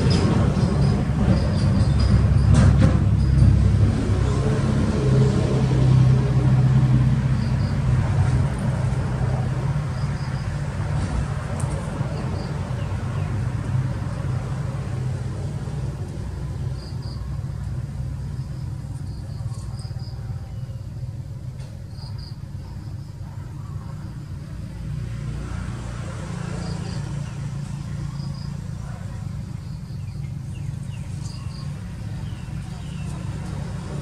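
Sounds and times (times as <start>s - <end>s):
low engine rumble: 0.0s - 34.0s.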